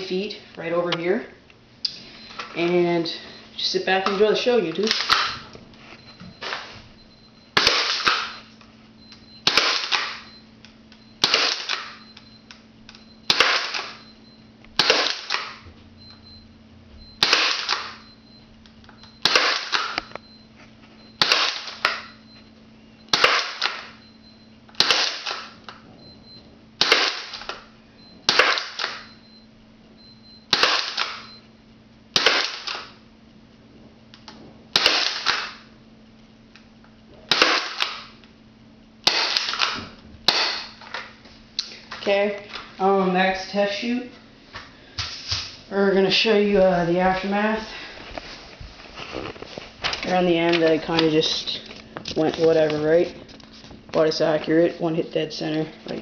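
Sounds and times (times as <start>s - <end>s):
airsoft shotgun shots: 30.5s - 31.2s, 32.2s - 32.8s, 34.8s - 35.6s, 37.3s - 38.0s, 39.0s - 40.8s.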